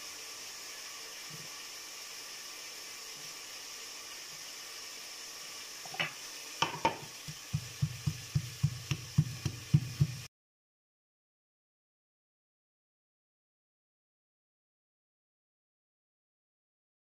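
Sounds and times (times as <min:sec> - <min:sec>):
faint hiss: 0:00.0 - 0:10.3
pestle pounding in stone mortar: 0:06.6 - 0:10.3.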